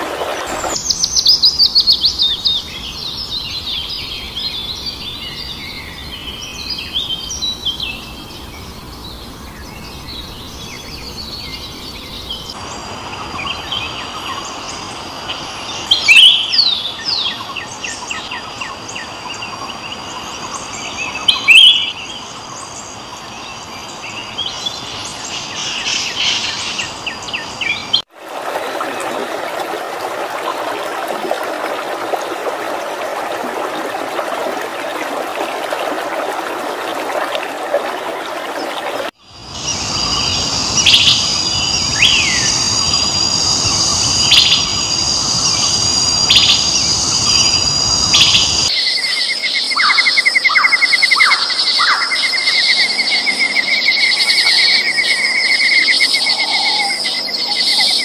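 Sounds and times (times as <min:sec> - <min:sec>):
running water rushing: 0:00.0 - 0:04.5, 0:28.1 - 0:48.7
birds singing and chirping: 0:39.4 - 0:49.0.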